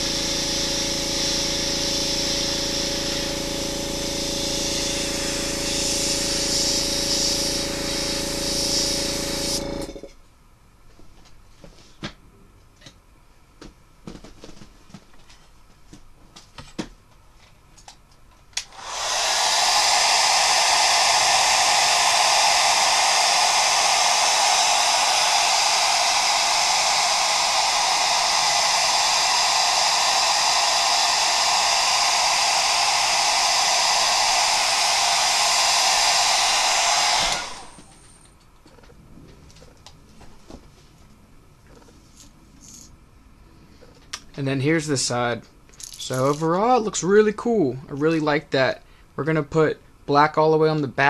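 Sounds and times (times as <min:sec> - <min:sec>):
hair dryer blowing: 0:00.0 - 0:10.0, 0:18.6 - 0:38.2.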